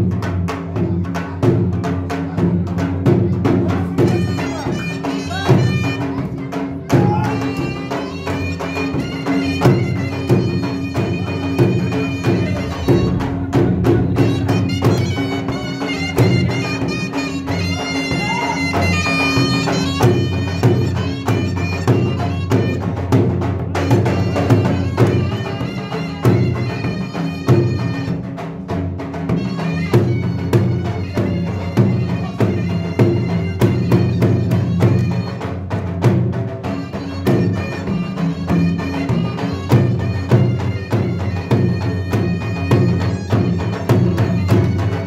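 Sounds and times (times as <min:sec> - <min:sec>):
driving drum beat: 0:00.0 - 0:45.0
shrill reed pipe melody: 0:04.0 - 0:23.1, 0:23.8 - 0:28.4, 0:36.6 - 0:45.0.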